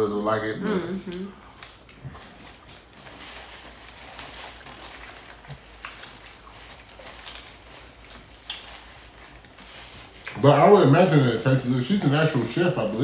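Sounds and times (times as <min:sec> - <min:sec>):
chewing fried chicken: 0:01.1 - 0:13.0
wet mouth clicks and lip smacks: 0:05.2 - 0:07.4, 0:08.0 - 0:09.5.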